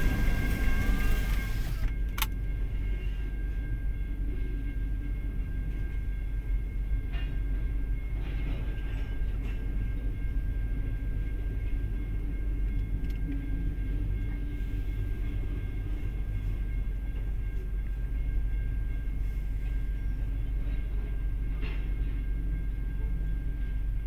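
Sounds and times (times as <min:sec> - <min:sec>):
faint high whine: 0:00.0 - 0:07.1
train wheels rumbling on rail: 0:00.0 - 0:24.0.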